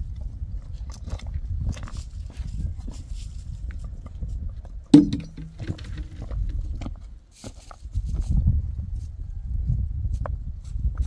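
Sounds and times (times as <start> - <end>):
hand tool chopping wood: 5.0 - 6.2.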